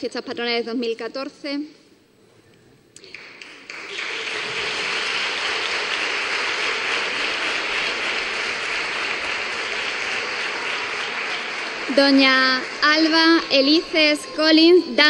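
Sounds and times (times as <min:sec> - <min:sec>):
large crowd applauding: 0:03.0 - 0:15.0.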